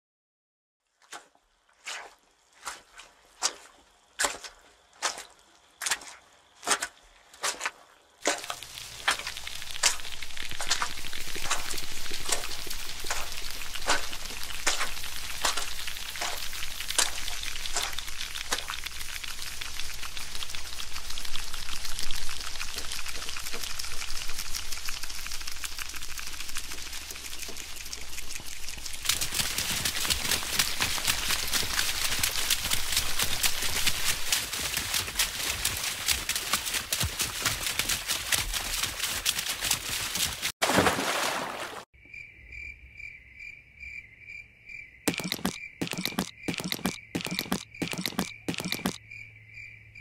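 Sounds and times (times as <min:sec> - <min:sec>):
quick footsteps: 0:01.9 - 0:18.8, 0:28.8 - 0:41.1, 0:45.1 - 0:49.0
heavy rain hissing: 0:08.4 - 0:26.4.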